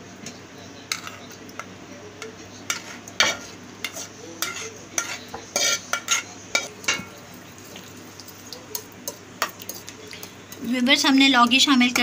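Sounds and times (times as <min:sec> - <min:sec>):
metal spoon scraping steel bowl: 0:02.7 - 0:06.8.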